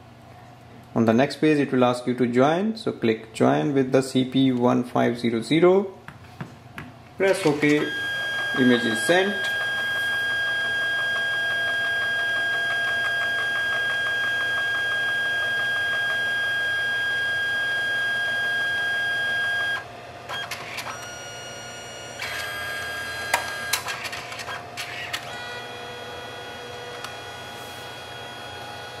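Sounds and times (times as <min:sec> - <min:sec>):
printer clicks and short whirs: 0:07.2 - 0:26.0
printer motor whine: 0:07.2 - 0:29.0.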